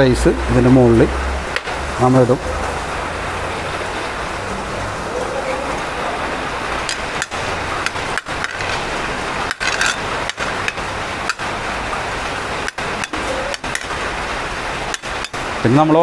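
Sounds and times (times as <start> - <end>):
steady rushing background noise: 0.0 - 16.0
metal spoon scraping ceramic plate: 9.5 - 10.8.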